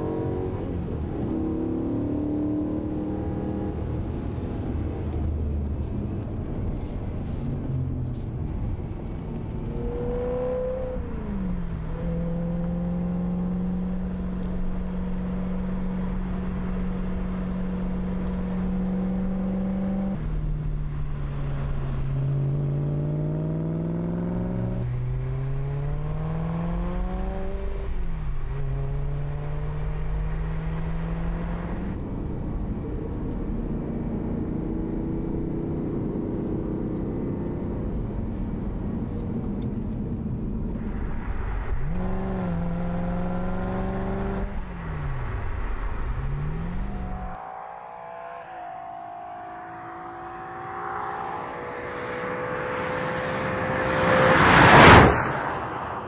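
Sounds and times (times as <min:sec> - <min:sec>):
car engine accelerating past: 0:41.3 - 0:56.0.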